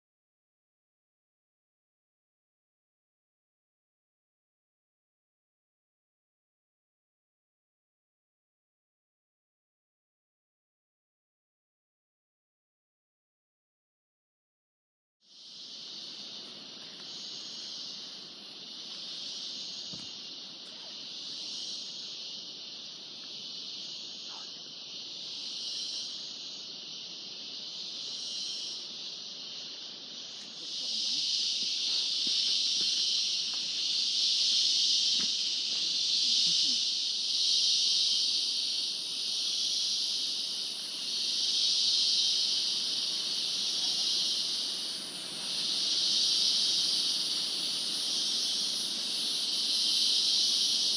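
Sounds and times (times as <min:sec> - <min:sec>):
insect chorus hiss: 0:15.2 - 0:50.9.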